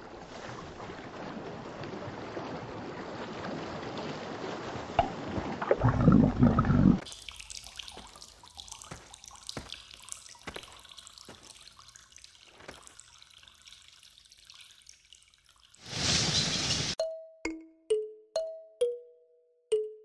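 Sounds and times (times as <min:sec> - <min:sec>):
water dripping: 0:05.0 - 0:15.8
light hiss: 0:15.8 - 0:17.0.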